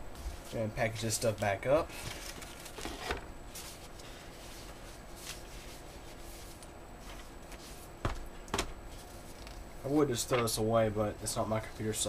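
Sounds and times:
paper rustling: 0:01.2 - 0:07.9.

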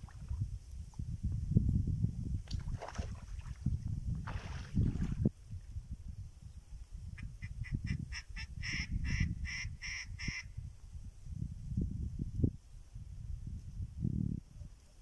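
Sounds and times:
water splash from wading: 0:00.0 - 0:00.4, 0:02.4 - 0:05.3
wind rumbling on microphone: 0:00.0 - 0:15.0.

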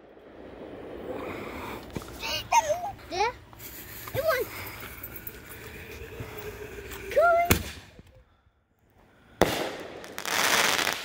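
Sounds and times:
firework crackling: 0:00.0 - 0:08.0, 0:09.4 - 0:11.0
firework report: 0:00.0 - 0:08.2, 0:09.3 - 0:11.0
firework bang: 0:07.5 - 0:08.0, 0:09.4 - 0:11.0.

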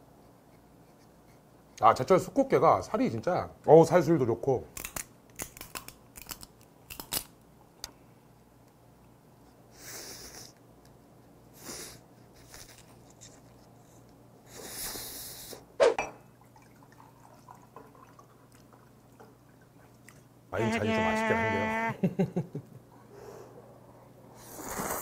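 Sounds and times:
hissing slurps: 0:24.4 - 0:25.0.

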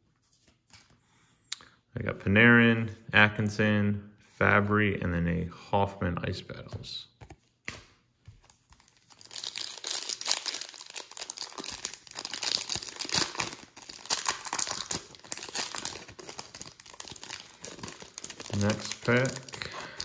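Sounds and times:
foil wrapper crinkling: 0:08.8 - 0:20.0.

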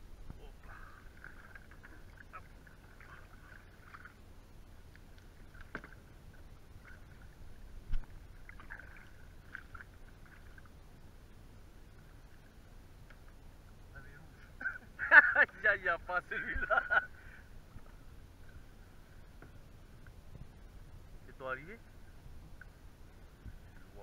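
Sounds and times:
water sloshing around kayak: 0:00.0 - 0:13.7
faint clicks: 0:13.0 - 0:13.4.

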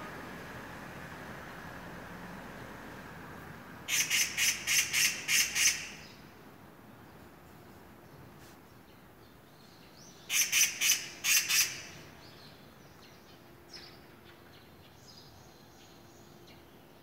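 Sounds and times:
bird calling harshly: 0:03.9 - 0:06.2, 0:10.3 - 0:12.1
bird chirps: 0:03.9 - 0:06.3.

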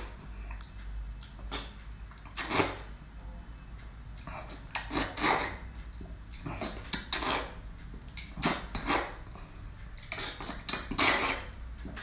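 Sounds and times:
person slurping food: 0:04.4 - 0:05.6, 0:06.5 - 0:07.6, 0:08.4 - 0:09.2, 0:10.1 - 0:11.6.

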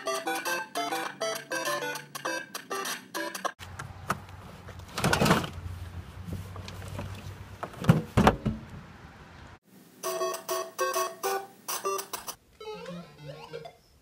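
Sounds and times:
scraping and rustling in a bin: 0:04.4 - 0:08.2.

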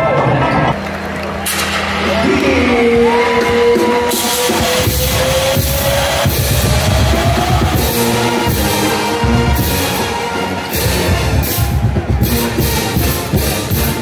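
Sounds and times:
loud rock music: 0:01.2 - 0:14.0.

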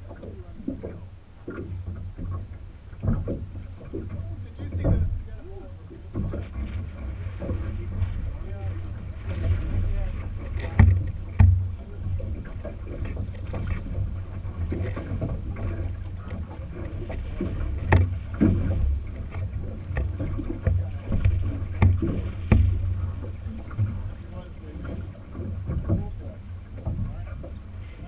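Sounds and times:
oar strokes and splashes: 0:00.0 - 0:28.0
steady low rumble: 0:00.0 - 0:28.0
sharp knocks: 0:10.6 - 0:16.5, 0:17.1 - 0:23.9.

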